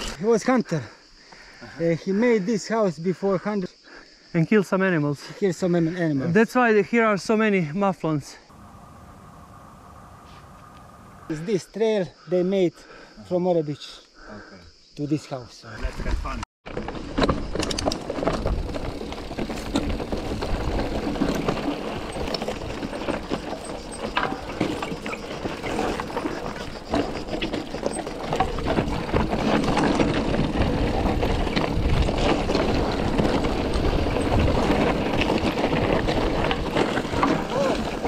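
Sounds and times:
bike tyres rumbling over ground: 15.8s - 38.0s
bike knocks and rattles: 16.0s - 38.0s.

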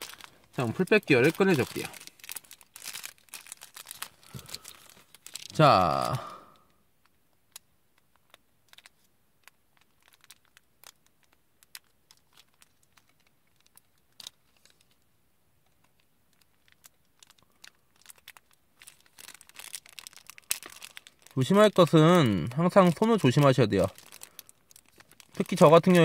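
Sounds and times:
plastic bag crinkling: 0.0s - 6.6s, 8.2s - 15.0s, 15.9s - 26.0s.

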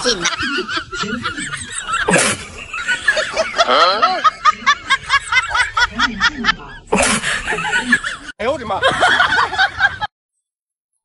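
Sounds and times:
person snickering: 0.0s - 8.2s.

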